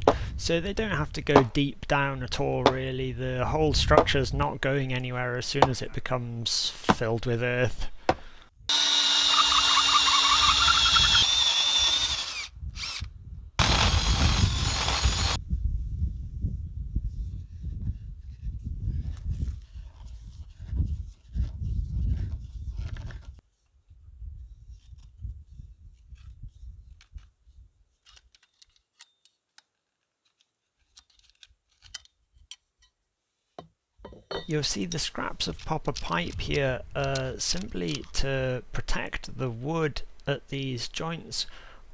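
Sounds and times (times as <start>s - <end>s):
cordless drill boring into wood: 8.7s - 15.4s
pipe cutter clicking and scraping: 35.4s - 38.2s.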